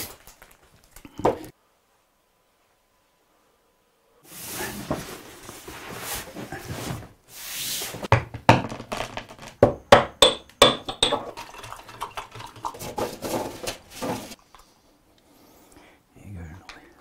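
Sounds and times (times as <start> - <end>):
paper rustling and crackling: 12.8 - 14.4.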